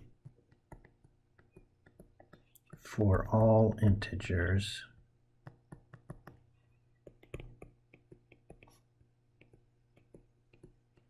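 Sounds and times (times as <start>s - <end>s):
stylus tapping on tablet screen: 0.0s - 2.9s, 5.4s - 11.0s.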